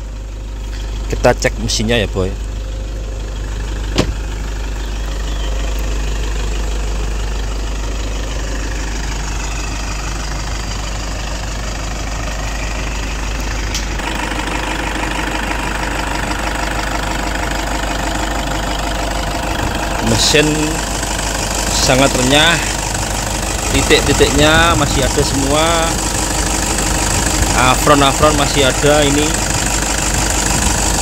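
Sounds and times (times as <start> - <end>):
diesel engine idling: 0.0 - 31.0
sharp click: 13.7 - 13.9.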